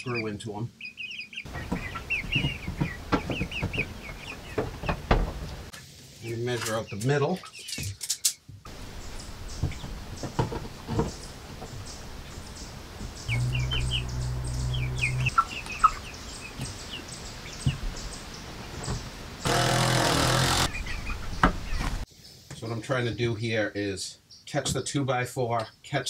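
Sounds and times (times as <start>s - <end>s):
bird chirps: 0.0s - 4.7s, 8.7s - 19.0s, 20.7s - 22.0s
low steady hum: 8.7s - 15.9s
knocks of wooden strips: 19.4s - 20.8s
cordless drill running: 19.5s - 20.7s.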